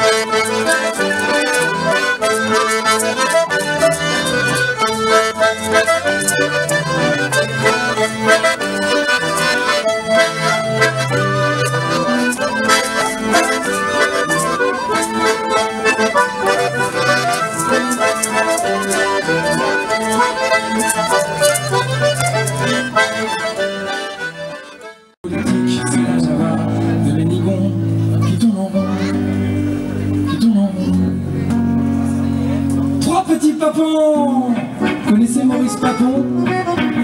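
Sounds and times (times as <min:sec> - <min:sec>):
button accordions playing: 0:00.0 - 0:25.2, 0:34.8 - 0:37.0.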